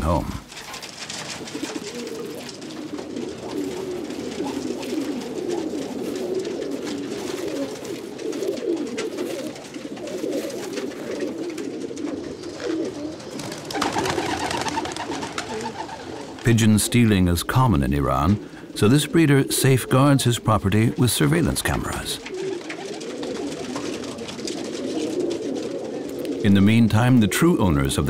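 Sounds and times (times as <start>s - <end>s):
pigeons cooing: 0.0s - 28.0s.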